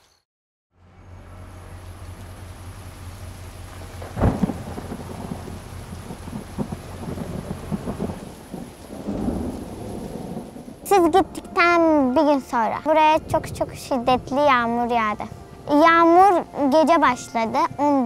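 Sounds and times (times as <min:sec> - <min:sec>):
steady rain: 0:01.1 - 0:18.0
low rumble of thunder: 0:01.6 - 0:11.2
sharp thunderclap: 0:03.8 - 0:10.9.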